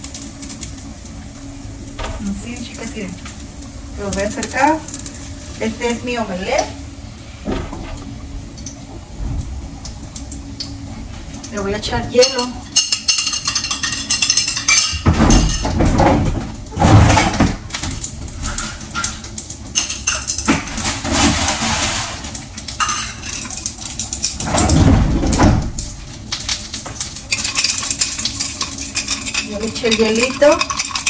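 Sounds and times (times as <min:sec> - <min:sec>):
ice cubes clinking: 0:27.3 - 0:31.0.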